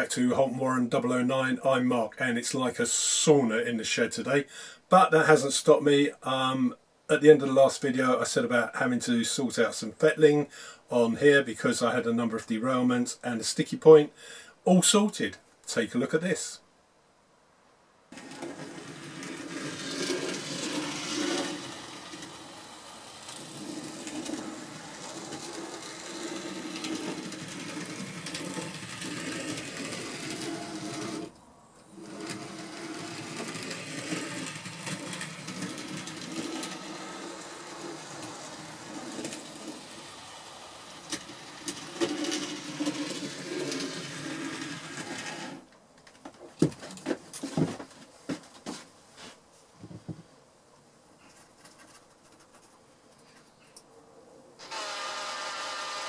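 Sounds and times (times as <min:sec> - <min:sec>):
model train motor whirring: 0:18.1 - 0:45.7, 0:54.6 - 0:56.0.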